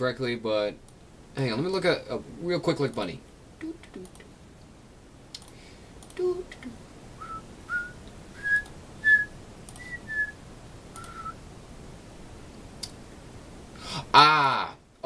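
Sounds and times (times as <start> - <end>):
faint clicks: 2.8 - 4.3, 5.3 - 6.7, 9.6 - 9.9, 10.9 - 11.2
man whistling: 7.2 - 10.4, 11.0 - 11.4.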